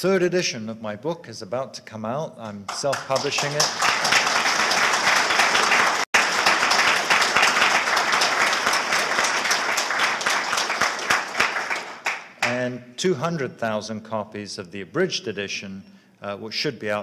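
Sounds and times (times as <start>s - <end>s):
audience applauding: 2.5s - 12.7s.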